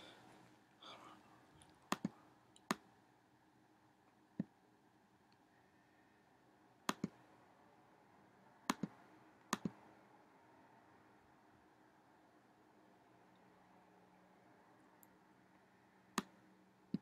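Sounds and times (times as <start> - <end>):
faint room hiss: 0.0 - 17.0
computer mouse button clicks: 6.9 - 7.2, 9.5 - 9.8.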